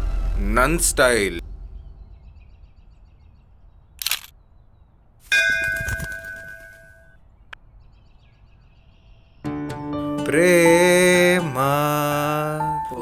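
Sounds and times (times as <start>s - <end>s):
faint birdsong: 1.4s - 13.0s
temple bell ringing: 5.3s - 7.0s
music: 9.4s - 13.0s.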